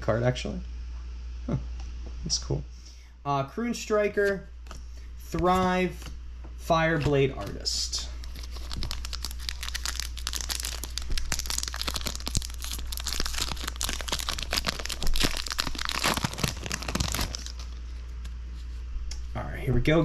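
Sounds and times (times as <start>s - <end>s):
foil wrapper crinkling: 7.5s - 18.1s.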